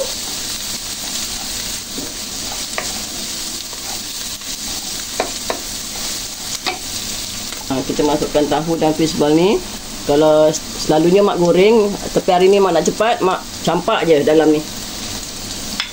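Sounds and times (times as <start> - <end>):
vegetables sizzling in hot oil: 0.0 - 15.9
wooden spatula stirring: 0.1 - 6.9
spatula knocking against pan: 5.1 - 5.7.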